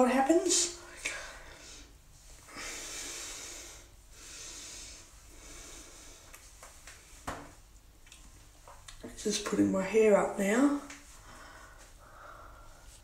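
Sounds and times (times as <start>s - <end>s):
person breathing: 1.0s - 6.4s, 11.1s - 13.0s.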